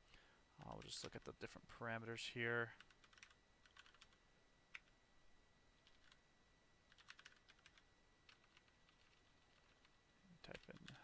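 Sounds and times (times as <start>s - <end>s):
computer keyboard typing: 2.8s - 4.9s, 5.8s - 6.2s, 6.9s - 11.0s.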